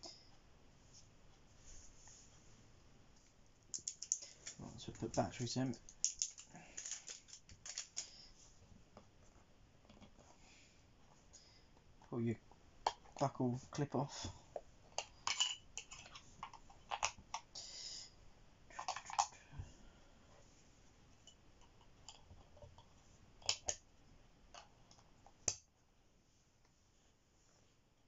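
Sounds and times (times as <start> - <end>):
plastic clicks: 3.7 - 8.1.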